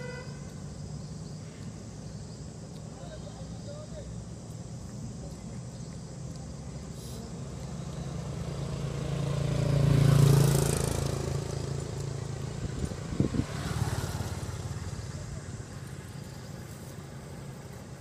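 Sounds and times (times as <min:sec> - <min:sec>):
vehicle engine passing by: 0:07.2 - 0:18.0.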